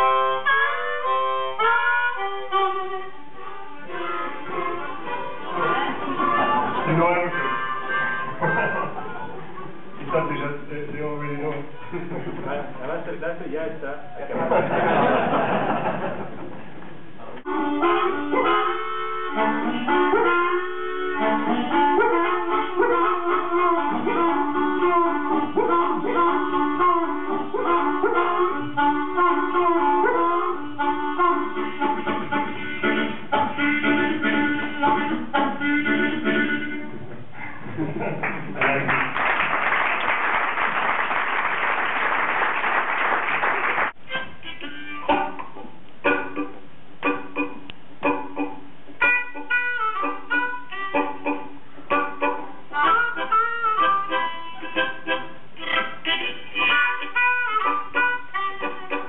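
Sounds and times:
blues harmonica playing: 0.0s - 12.3s, 17.4s - 37.1s, 43.9s - 59.0s
audience applauding: 38.2s - 44.0s.

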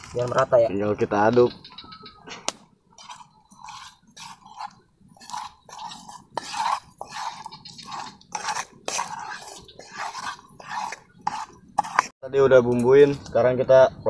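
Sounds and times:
wet squelching stirring: 2.4s - 12.2s.

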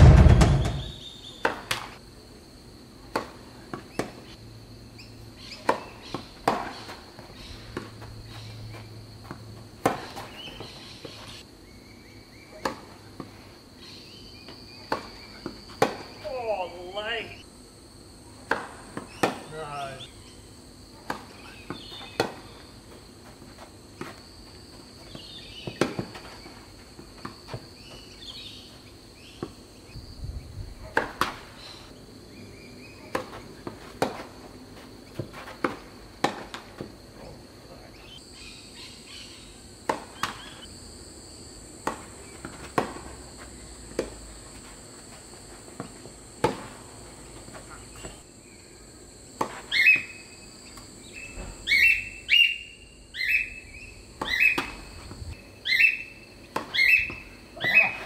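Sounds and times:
tennis ball bounces: 1.4s - 1.9s, 3.1s - 4.3s, 5.5s - 8.1s, 8.7s - 11.2s, 14.5s - 16.2s, 18.4s - 19.6s, 21.0s - 22.7s, 25.0s - 26.4s, 30.8s - 31.5s, 33.0s - 34.3s, 35.0s - 37.0s, 39.8s - 40.7s, 41.8s - 44.6s, 54.2s - 55.2s, 56.4s - 58.0s.

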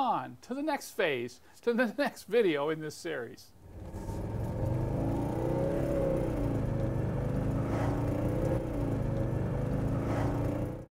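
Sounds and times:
diesel car engine running: 3.6s - 10.9s.

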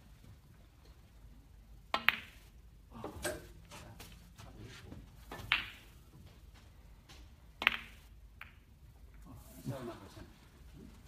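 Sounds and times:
snooker balls clicking: 1.8s - 3.6s, 5.2s - 9.2s.

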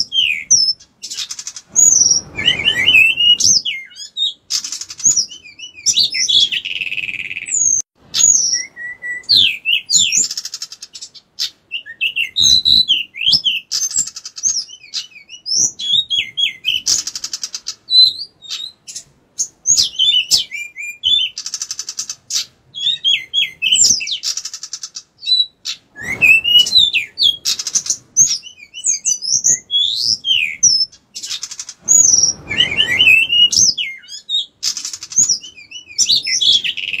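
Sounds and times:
bird singing whistled notes: 0.0s - 37.0s
rough noise bursts: 31.7s - 33.8s.

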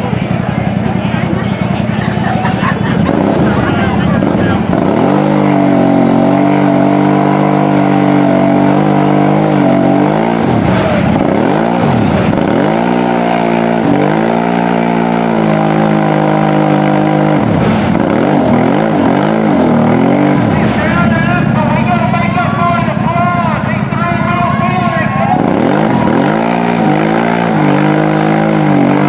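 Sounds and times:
atv engine at high revs: 0.0s - 29.0s
tyres churning mud: 0.0s - 29.0s.

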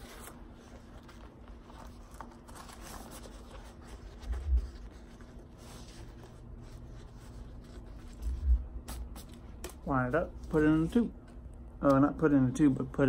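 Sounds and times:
vinyl banner rustling: 0.0s - 13.0s.

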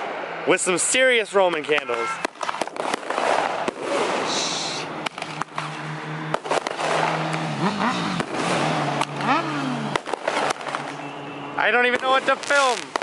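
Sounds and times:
fireworks hissing: 2.6s - 5.2s, 12.0s - 13.0s
roman candles popping: 9.9s - 11.1s, 12.0s - 13.0s.

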